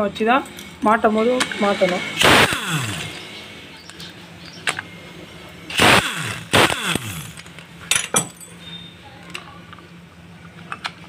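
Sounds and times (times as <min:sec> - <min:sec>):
power tool spinning bolts: 0:01.1 - 0:03.6, 0:05.6 - 0:07.7
metallic clinks of loose bolts: 0:07.4 - 0:08.6.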